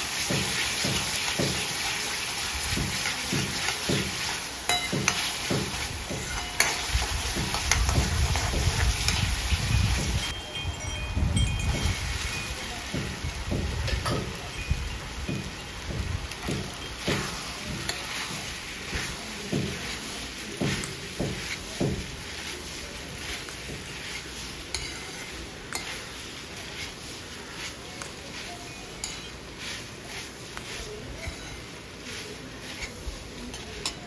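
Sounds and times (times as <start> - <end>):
frying sizzle: 0.0 - 34.0
metal ladle scraping a wok: 0.1 - 10.4, 15.6 - 34.0
metal clink: 4.7 - 5.2.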